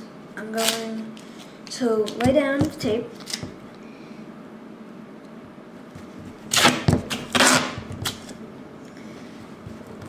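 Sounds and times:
duct tape ripping off roll: 0:00.6 - 0:00.9, 0:06.5 - 0:08.4.

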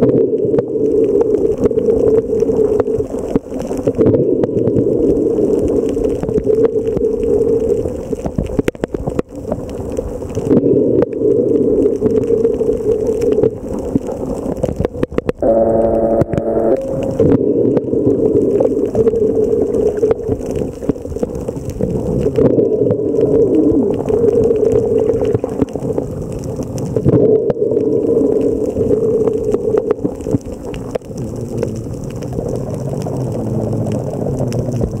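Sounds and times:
rushing water: 0:00.0 - 0:35.0
sharp underwater clicks: 0:00.0 - 0:35.0
underwater engine drone: 0:15.3 - 0:21.8.

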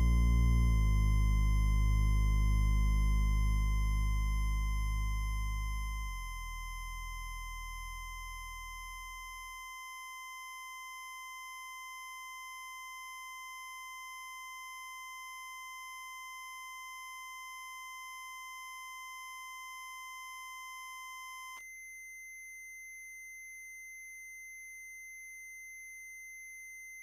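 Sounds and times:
low bass note: 0:00.0 - 0:07.8.

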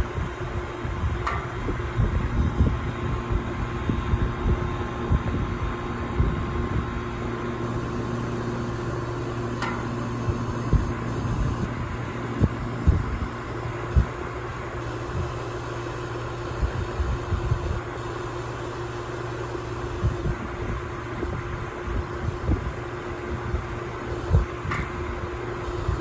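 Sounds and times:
air conditioner unit humming: 0:00.0 - 0:26.0
low rumbles: 0:00.2 - 0:15.6.

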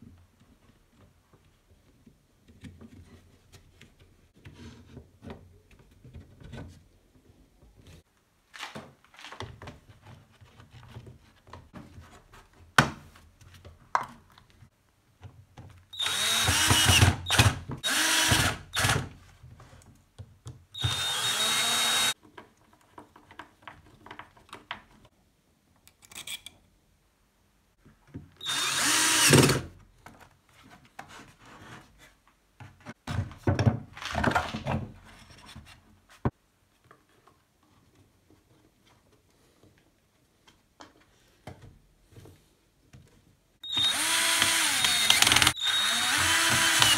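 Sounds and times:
cordless drill whirring: 0:16.0 - 0:19.0, 0:20.8 - 0:22.2, 0:28.4 - 0:29.6, 0:43.6 - 0:46.9
parts clicking and knocking: 0:43.7 - 0:46.9.

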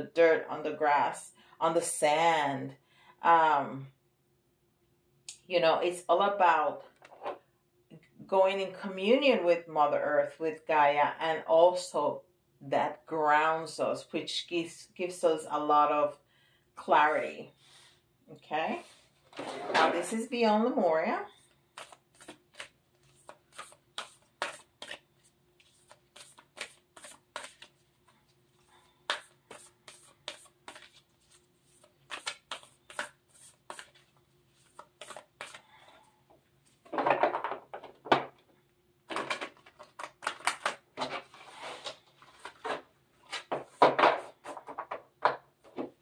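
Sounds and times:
cards being shuffled: 0:21.4 - 0:35.7.

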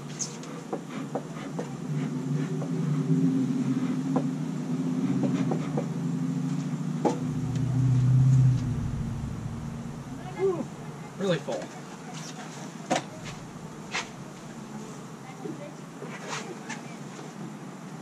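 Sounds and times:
low vehicle rumble: 0:05.9 - 0:11.2, 0:12.9 - 0:15.1
bees humming: 0:07.1 - 0:10.9.

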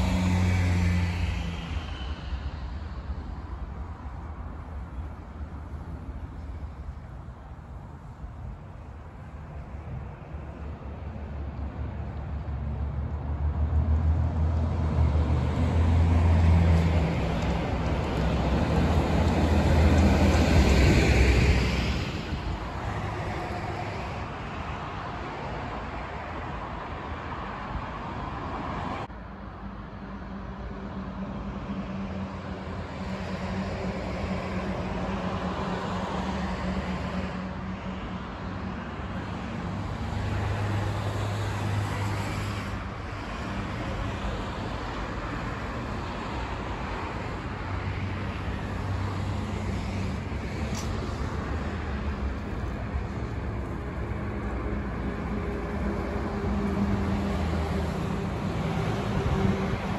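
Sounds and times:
passing cars: 0:00.0 - 0:59.9.

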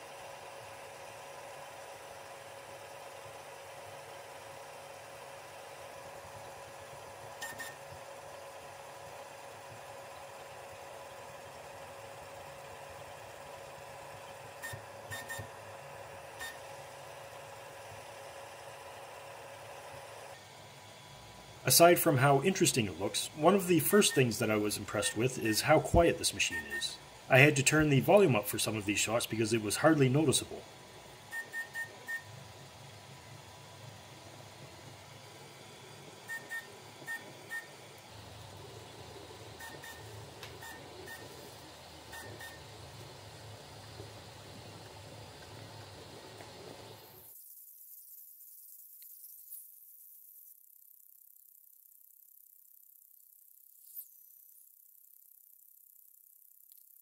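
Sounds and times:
printer fans and motors humming: 0:00.0 - 0:47.4
stepper motor chirps: 0:47.0 - 0:57.0.

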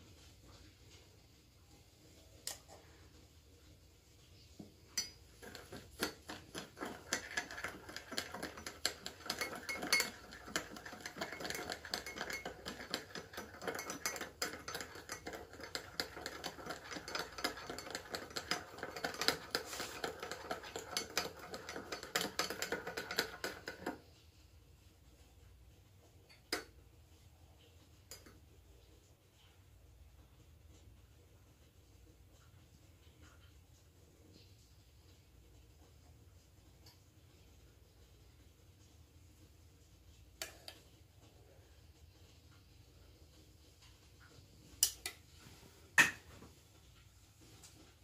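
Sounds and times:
teaspoon clinking against ceramic cup: 0:05.0 - 0:23.9.

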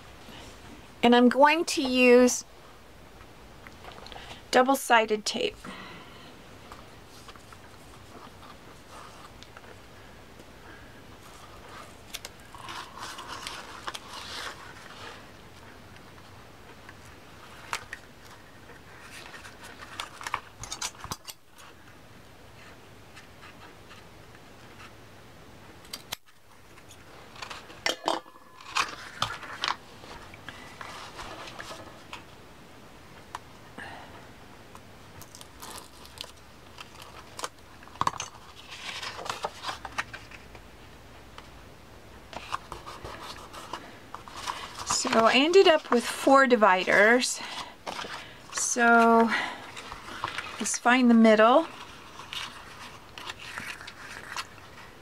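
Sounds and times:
cardstock rustling: 0:42.4 - 0:54.9.

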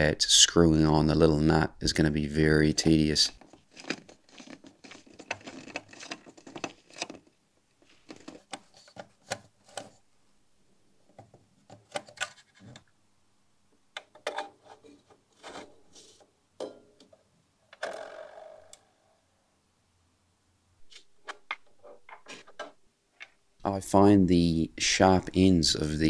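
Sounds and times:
light metal clicks and scratches: 0:03.4 - 0:10.0.

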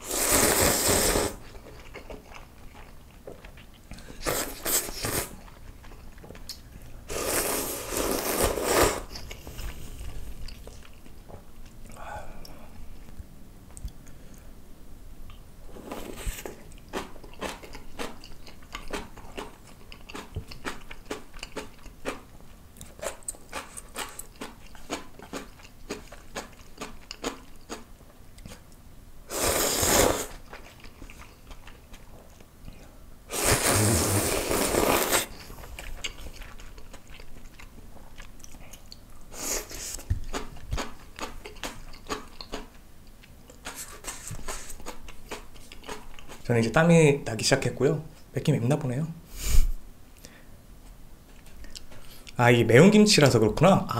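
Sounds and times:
loud noodle slurps: 0:00.0 - 0:01.5, 0:04.2 - 0:05.5, 0:07.1 - 0:09.2, 0:29.3 - 0:30.4, 0:33.3 - 0:35.4
crunchy chewing: 0:00.1 - 0:11.8, 0:15.3 - 0:28.8, 0:29.4 - 0:46.5.

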